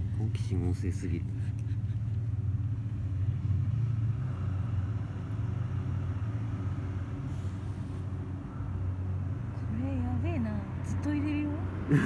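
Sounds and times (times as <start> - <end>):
car engine idling: 0.0 - 4.6.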